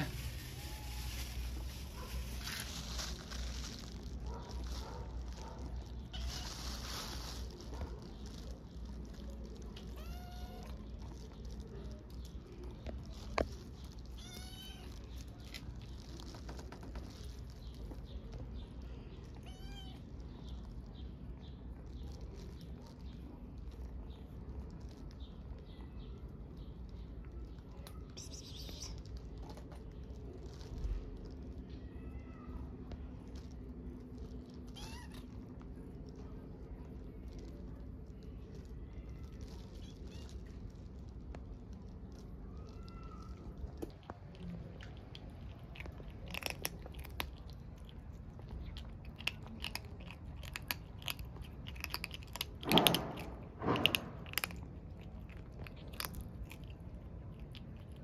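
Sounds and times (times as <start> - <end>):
steady low rumble: 0.0 - 58.0
kittens meowing: 6.0 - 7.4, 9.5 - 11.6, 13.9 - 15.6, 19.2 - 20.2, 34.5 - 35.6, 38.9 - 40.7
kitten meowing: 6.1 - 6.8, 9.9 - 10.8, 14.0 - 15.1, 19.4 - 20.0, 34.7 - 35.4.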